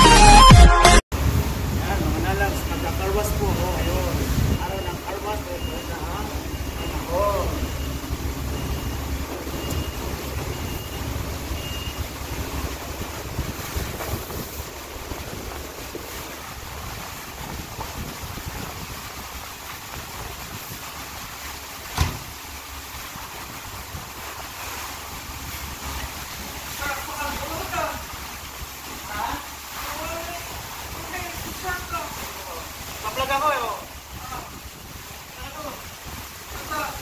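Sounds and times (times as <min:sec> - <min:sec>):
wind on microphone: 0:01.2 - 0:05.2, 0:06.0 - 0:21.3
rumbling hiss: 0:01.2 - 0:37.0
short high beeps: 0:02.8 - 0:12.0.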